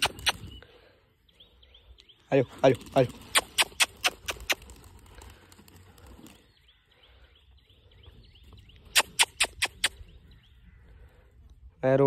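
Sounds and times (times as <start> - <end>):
sharp clicks: 0.0 - 0.5, 3.2 - 4.8, 8.9 - 10.0
small bird chirps: 6.4 - 10.8.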